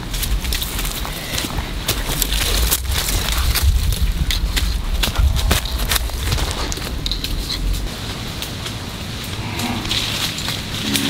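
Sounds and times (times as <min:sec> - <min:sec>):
noisy outdoor background: 0:00.0 - 0:11.0
cow lowing: 0:09.3 - 0:11.0.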